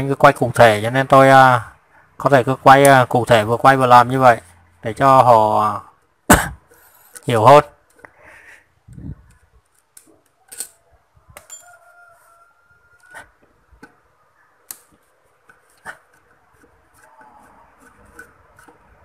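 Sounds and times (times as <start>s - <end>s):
screwdriver and metal parts clicking: 9.3s - 10.8s, 11.4s - 11.9s
rooster crowing: 10.4s - 13.4s.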